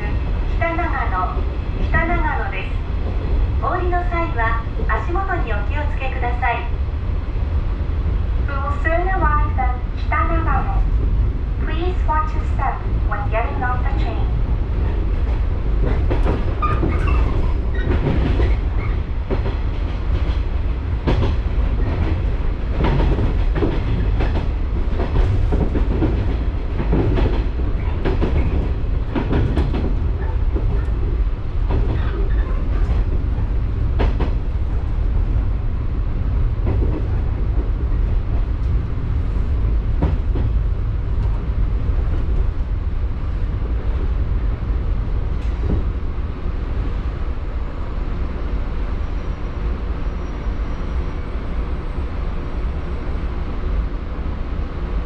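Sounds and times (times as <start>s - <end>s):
train low rumble: 0.0s - 55.0s.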